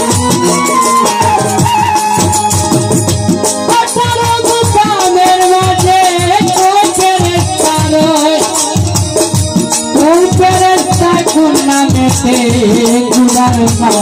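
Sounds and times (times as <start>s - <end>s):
man singing into a microphone: 3.6s - 9.0s, 9.9s - 14.0s.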